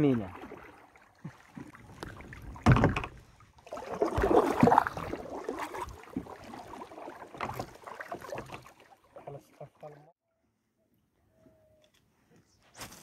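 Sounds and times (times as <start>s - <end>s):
thump on kayak: 2.5s - 3.2s.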